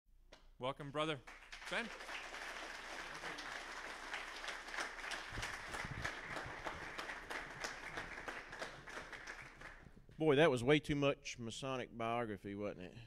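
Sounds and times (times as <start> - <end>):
audience applauding: 1.2 - 10.0.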